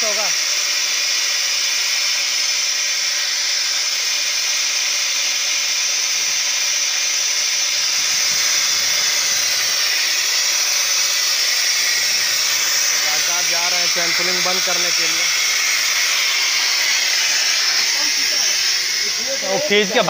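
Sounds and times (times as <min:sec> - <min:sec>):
compressed air hissing: 0:07.0 - 0:20.0.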